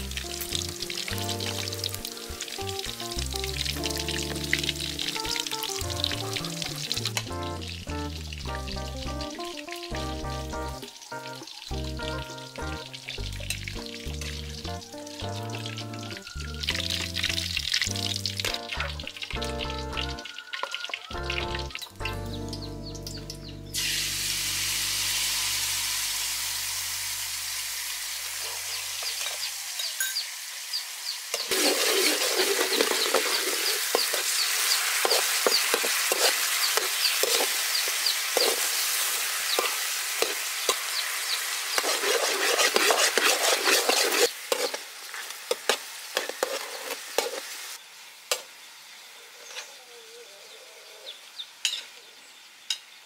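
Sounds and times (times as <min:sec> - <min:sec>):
ribs sizzling in a wok: 0:00.0 - 0:49.6
spatula scraping a wok: 0:31.4 - 0:47.8.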